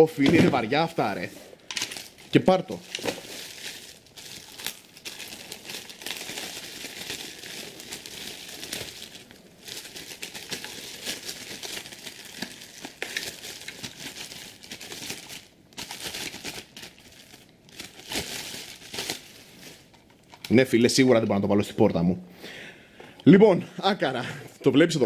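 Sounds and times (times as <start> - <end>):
plastic bag crinkling: 1.2 - 20.6.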